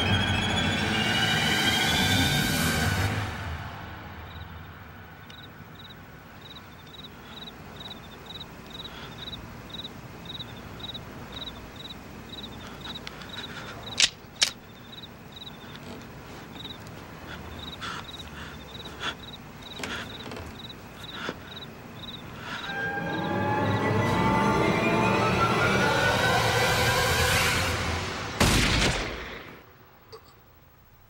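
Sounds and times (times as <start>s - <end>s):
crickets chirping: 2.8s - 27.5s
sharp clicks: 12.9s - 14.8s.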